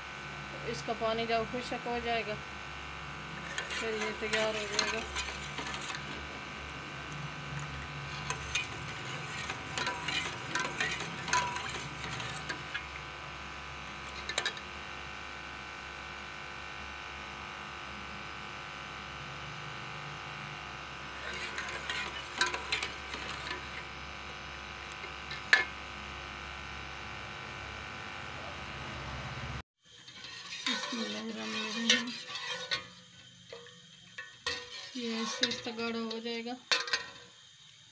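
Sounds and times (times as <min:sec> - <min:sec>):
steady buzzing hum: 0:00.0 - 0:37.8
ladle scraping metal pot: 0:03.3 - 0:14.7, 0:21.1 - 0:25.8, 0:30.0 - 0:37.2.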